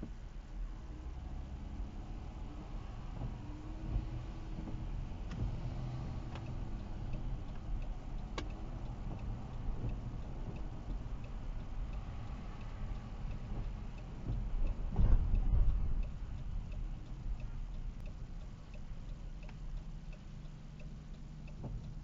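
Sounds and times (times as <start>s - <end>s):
faint regular ticking: 0.0s - 22.0s
road and engine rumble: 0.0s - 22.0s.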